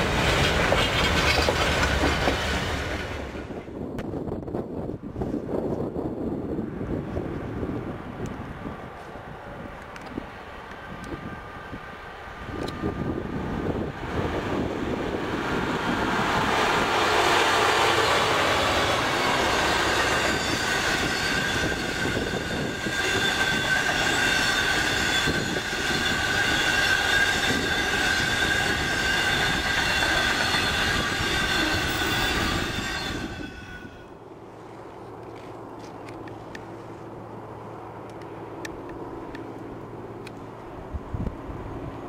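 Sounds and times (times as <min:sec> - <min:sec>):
diesel locomotive passing: 0:00.0 - 0:42.0
wheels rumbling on rails: 0:00.0 - 0:42.0
high wheel squeal: 0:16.6 - 0:34.2.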